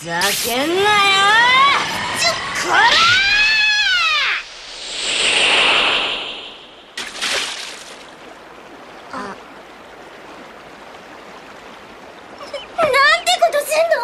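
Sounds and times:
water flowing: 0.0s - 14.0s
water splash: 4.4s - 8.4s.

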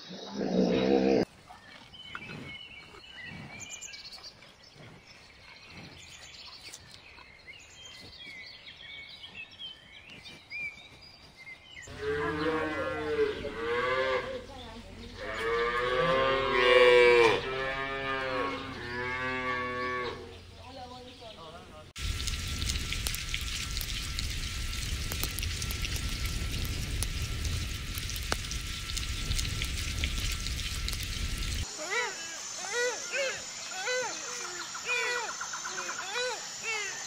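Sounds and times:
cattle mooing: 11.9s - 14.6s, 15.2s - 20.4s.

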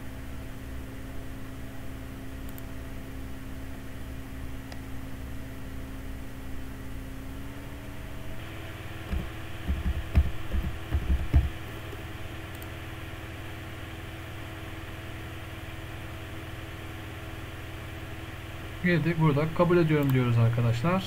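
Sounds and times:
low hum: 0.0s - 21.0s
keyboard typing: 9.1s - 12.7s.

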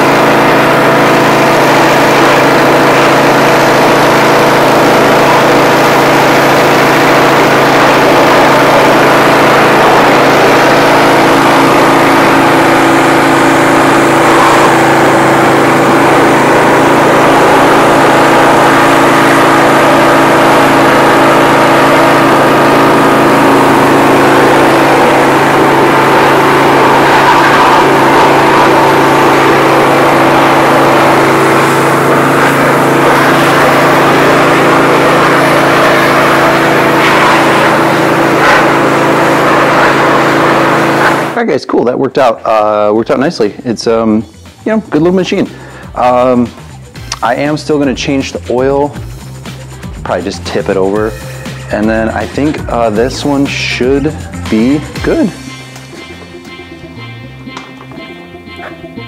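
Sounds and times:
pressure washer engine running: 0.0s - 41.4s, 44.9s - 56.3s.

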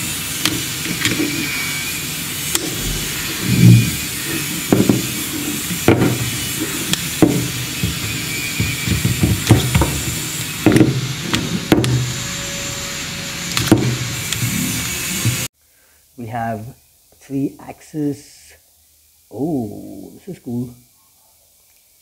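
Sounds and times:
steady background hiss: 15.5s - 22.0s.

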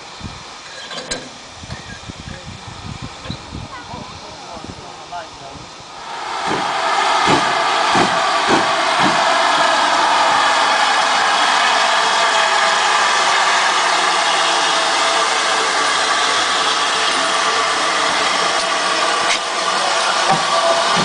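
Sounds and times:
steam locomotive hissing: 0.0s - 21.0s
low thuds: 6.4s - 9.2s.

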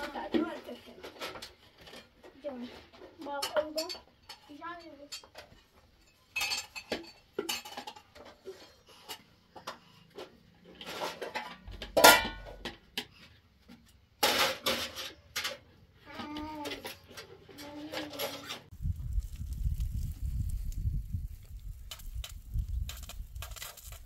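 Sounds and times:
dishes and pots clattering: 3.4s - 13.2s.

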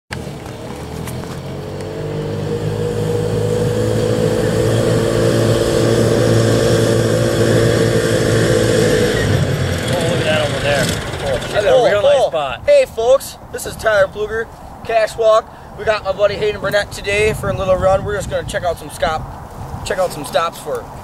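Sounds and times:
golf cart engine running: 0.1s - 12.3s.

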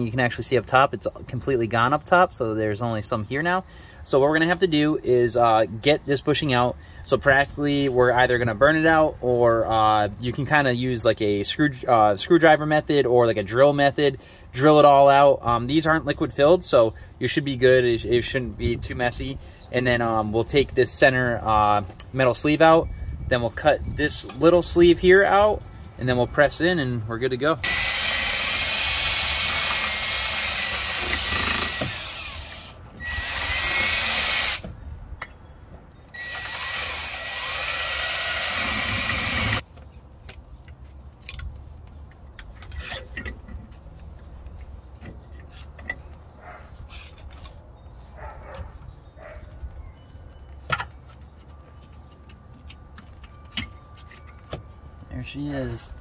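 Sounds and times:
cordless drill whining: 27.6s - 34.6s, 36.1s - 39.6s
hand tool scraping and clicking: 42.4s - 43.6s.

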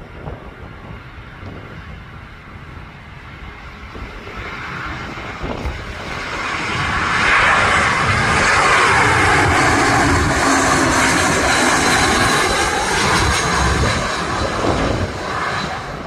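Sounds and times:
jet airliner engine noise: 0.0s - 16.0s.

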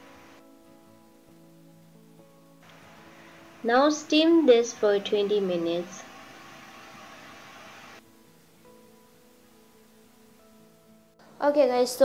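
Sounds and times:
quiet background music: 0.0s - 12.0s.

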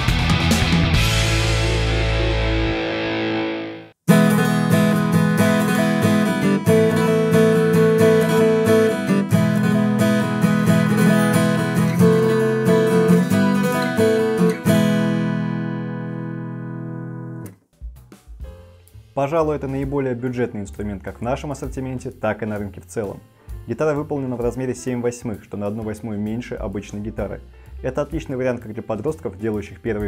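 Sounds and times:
acoustic guitar strumming: 0.0s - 17.6s
intro music: 0.0s - 28.3s.

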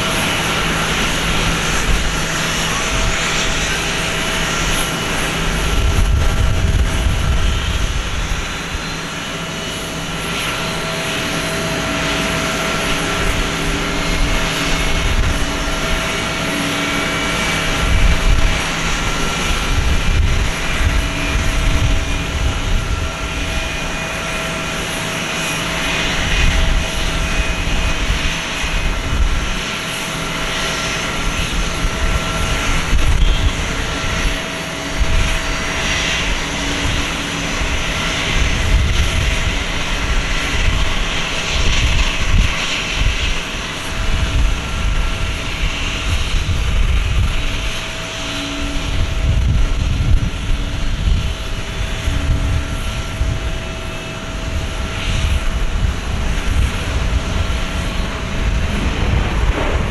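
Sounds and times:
jet engine high whine: 0.0s - 59.9s
low rumble: 0.9s - 8.9s, 52.0s - 59.9s.

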